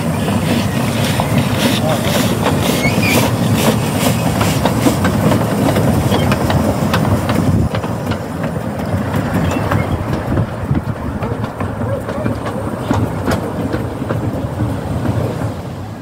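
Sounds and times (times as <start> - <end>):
steam hissing: 0.0 - 16.0
steam locomotive chuffing: 0.0 - 16.0
wheels clicking on track: 0.0 - 16.0.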